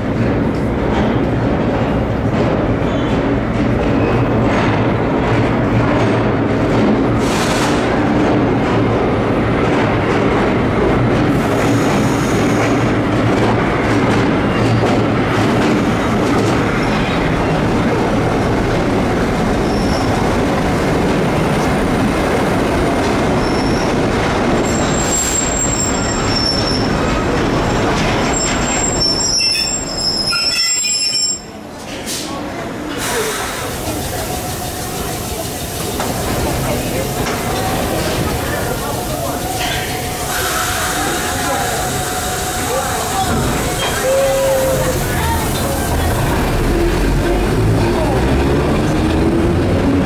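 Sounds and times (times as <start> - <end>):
train wheels rumbling on rails: 0.0 - 50.0
high-pitched wheel squeal: 28.3 - 31.5.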